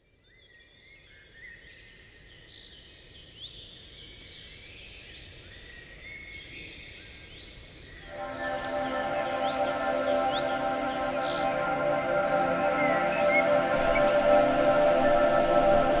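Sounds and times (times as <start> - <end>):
steady low background noise: 8.1 - 16.0.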